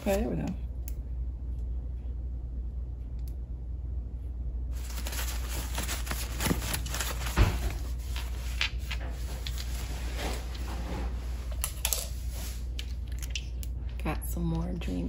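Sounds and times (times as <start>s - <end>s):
packing wrap crinkling: 4.8s - 10.7s.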